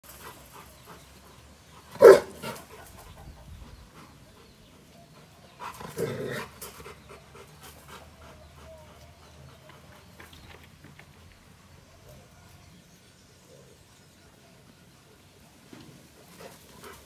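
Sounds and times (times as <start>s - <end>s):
dog barking deeply: 1.9s - 2.6s.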